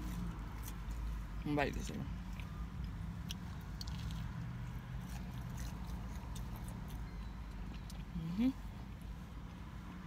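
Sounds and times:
person chewing food: 0.0s - 1.3s, 2.2s - 8.1s.

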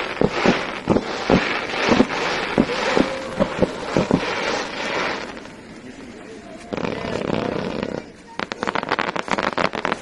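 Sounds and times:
crackling hiss of sparks: 0.0s - 10.0s
fireworks banging: 0.0s - 10.0s.

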